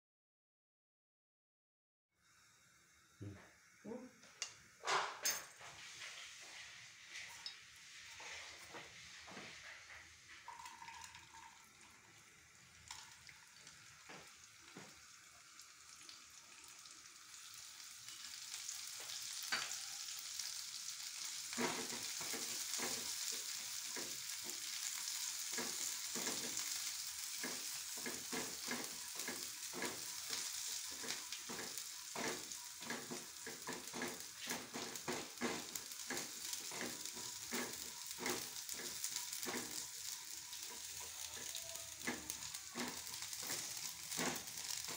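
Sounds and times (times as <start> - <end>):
seeds sizzling in hot oil: 2.2 - 44.9
spatula tapping and scraping: 21.5 - 44.9.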